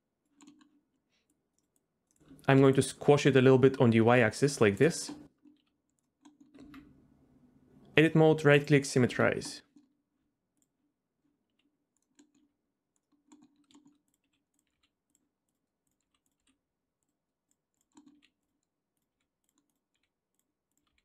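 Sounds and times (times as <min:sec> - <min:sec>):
computer mouse and keyboard clicks: 0:00.2 - 0:02.7, 0:05.1 - 0:07.0, 0:11.4 - 0:21.0.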